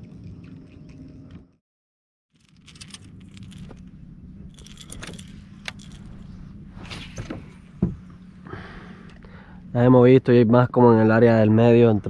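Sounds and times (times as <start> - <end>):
light jangling and clicking: 2.4 - 3.8, 4.5 - 6.2
steady low hum: 2.4 - 12.0.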